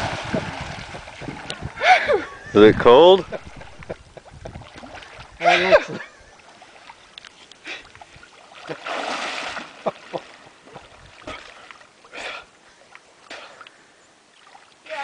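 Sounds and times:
water splashing around swimmer: 0:00.0 - 0:02.1, 0:06.4 - 0:12.5.

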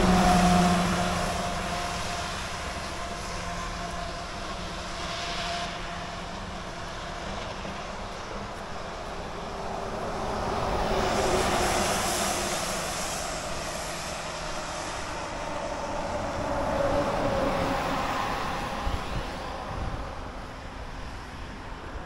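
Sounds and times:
vehicle engine passing by: 0:00.0 - 0:04.2.

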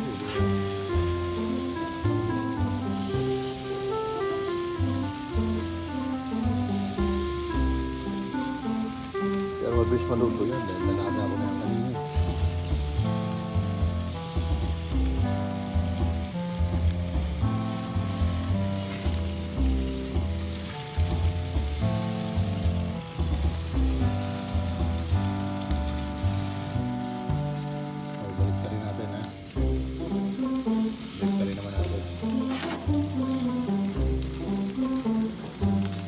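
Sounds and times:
background music with bass: 0:00.0 - 0:36.0
ribs sizzling on a grill: 0:00.0 - 0:36.0.

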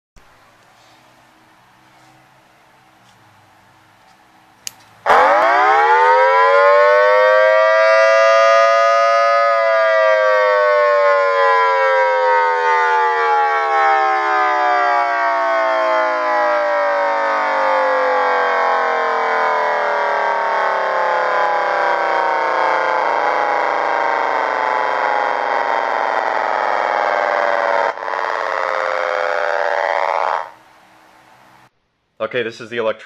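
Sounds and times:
electronic siren wailing: 0:05.0 - 0:30.7.

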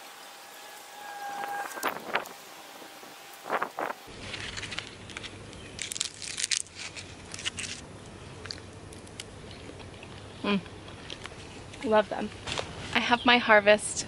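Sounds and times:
papery husks crinkling and rustling: 0:03.4 - 0:10.3.

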